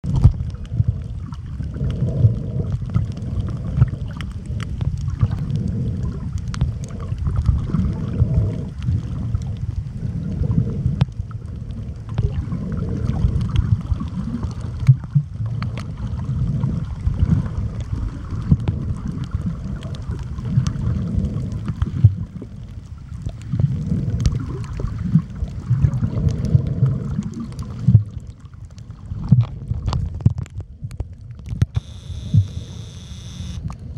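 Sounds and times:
faint underwater clicks: 0.0s - 33.9s
underwater rumble of moving water: 0.0s - 33.9s.

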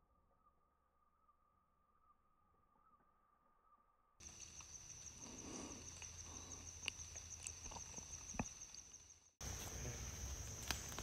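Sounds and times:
woods ambience: 0.0s - 11.0s
high-pitched insect hum: 4.2s - 11.0s.

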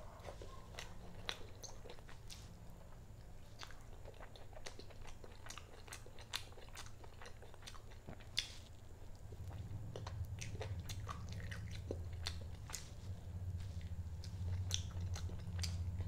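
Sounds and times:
person chewing: 0.0s - 16.0s
low hum: 8.6s - 16.0s.

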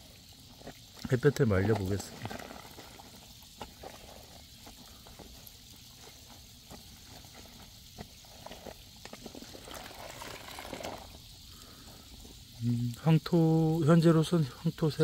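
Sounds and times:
foam bubbles crackling: 0.0s - 15.0s
wet cloth squelching and sloshing: 9.3s - 11.1s.

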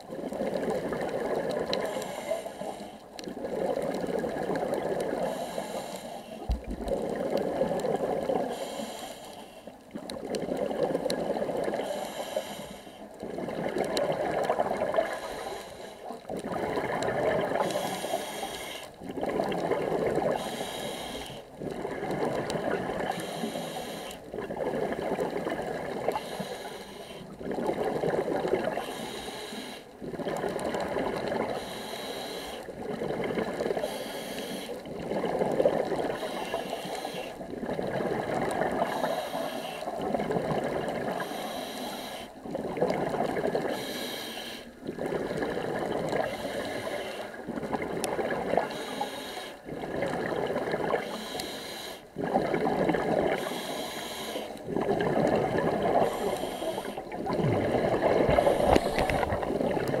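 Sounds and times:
diver breathing through regulator: 1.6s - 3.1s, 5.2s - 6.5s, 8.3s - 9.7s, 11.7s - 13.1s, 14.9s - 16.7s, 17.6s - 19.0s, 20.3s - 21.8s, 23.0s - 24.2s, 26.1s - 27.3s, 28.7s - 30.0s, 31.4s - 32.8s, 33.6s - 34.9s, 36.0s - 37.4s, 38.7s - 40.1s, 41.0s - 42.5s, 43.6s - 45.2s, 46.1s - 47.4s, 48.6s - 49.7s, 50.7s - 52.2s, 53.3s - 54.8s, 55.8s - 60.0s.

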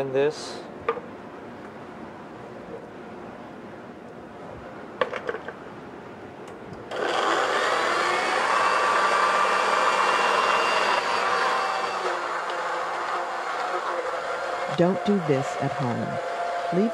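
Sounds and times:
blender motor chopping: 6.9s - 16.9s.

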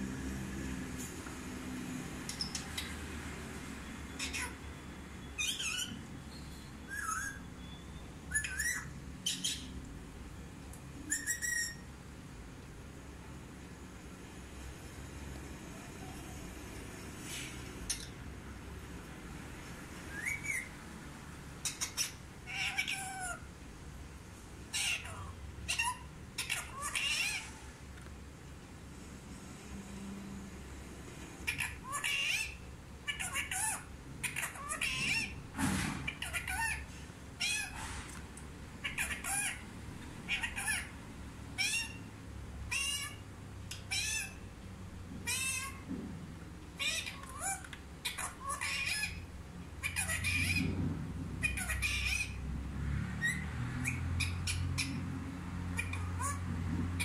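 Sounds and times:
parakeet calling: 2.2s - 9.8s, 11.0s - 11.9s, 17.8s - 18.2s, 20.0s - 20.8s, 21.6s - 23.5s, 24.7s - 27.7s, 31.4s - 37.9s, 38.8s - 44.5s, 45.2s - 45.9s, 46.8s - 50.8s, 51.4s - 52.5s, 53.2s - 57.0s.

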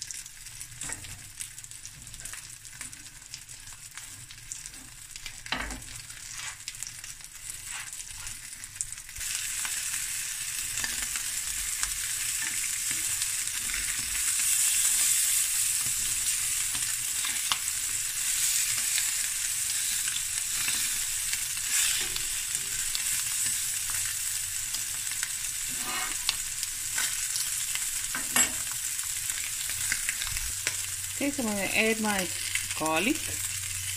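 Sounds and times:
chicken sizzling in a pan: 0.0s - 33.9s
fork scraping a pan: 25.7s - 26.4s.

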